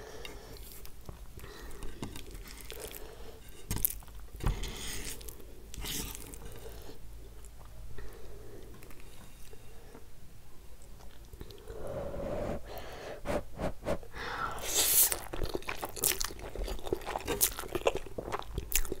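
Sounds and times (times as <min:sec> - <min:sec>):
chewing and crunching: 0:00.6 - 0:03.2, 0:15.0 - 0:19.0.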